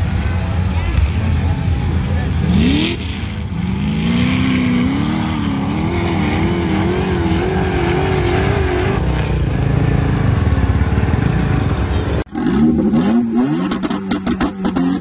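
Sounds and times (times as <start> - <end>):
off-road vehicle engine revving: 0.4 - 15.0.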